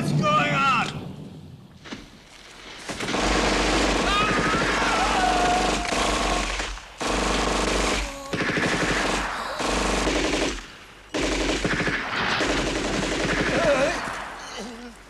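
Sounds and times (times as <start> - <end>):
automatic gunfire bursts: 2.9 - 14.4.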